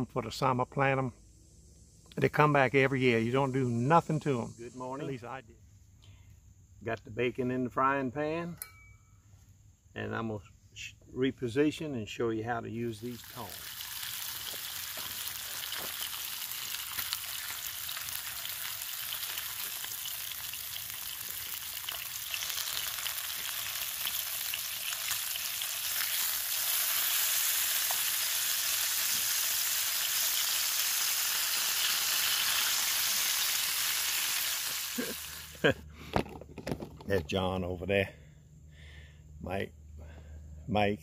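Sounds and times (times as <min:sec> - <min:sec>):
bacon sizzling in frying pan: 0:13.1 - 0:35.6.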